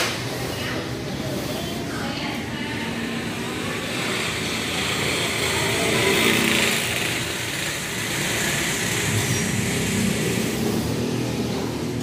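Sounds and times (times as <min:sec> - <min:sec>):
small engine running: 0:02.8 - 0:12.0.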